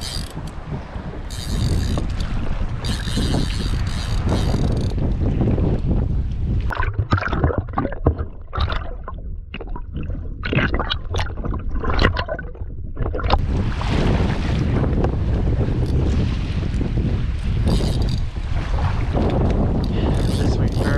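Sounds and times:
wind buffeting microphone: 0.0 - 20.9
knocks and splashes: 6.6 - 20.9.

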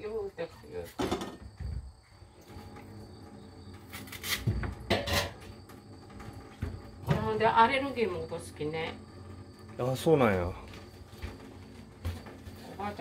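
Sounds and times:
kitchen things knocking and clattering: 0.9 - 1.9, 4.4 - 5.5.

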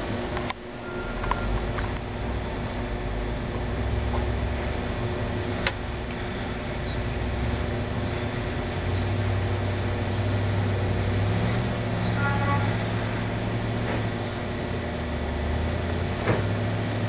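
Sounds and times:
car engine revving: 3.7 - 17.0.

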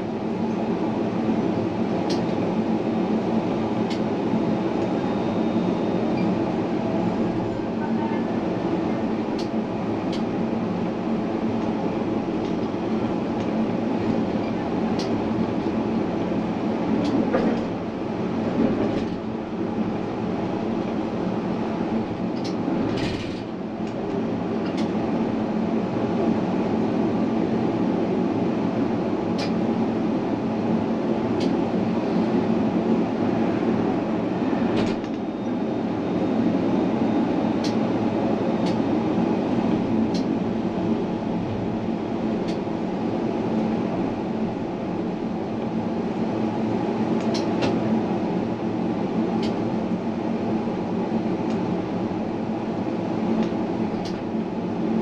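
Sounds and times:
tram hum: 0.0 - 55.0
tram rolling rumble: 0.0 - 55.0.

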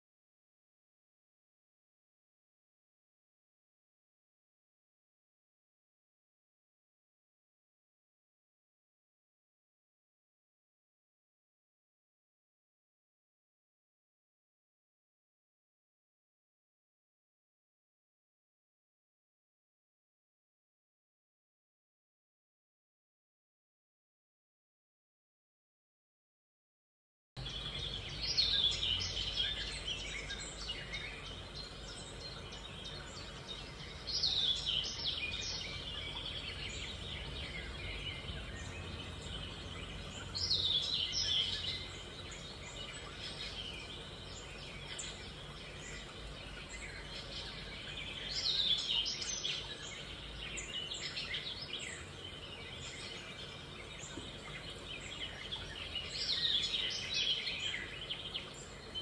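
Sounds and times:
steady background noise: 27.4 - 59.0.

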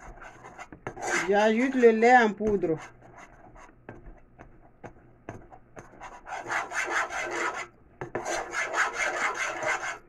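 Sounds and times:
utensil scraping a pot: 0.0 - 3.0.

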